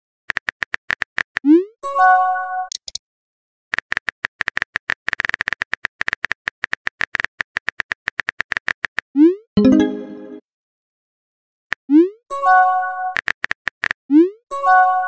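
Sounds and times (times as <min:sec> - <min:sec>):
keyboard typing clicks: 0:02.7 - 0:03.0.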